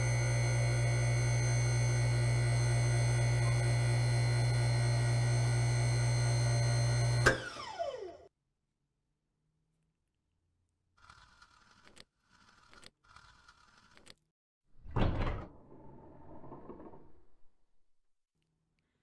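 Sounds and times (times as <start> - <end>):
machine hum with tones: 0.0 - 8.2.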